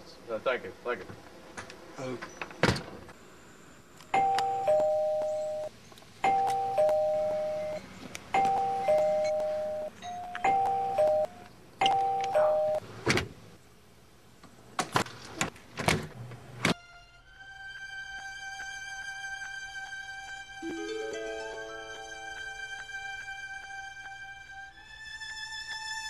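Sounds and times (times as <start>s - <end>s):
two-note doorbell chime: 4.2s - 7.8s, 8.4s - 12.8s, 20.6s - 22.4s.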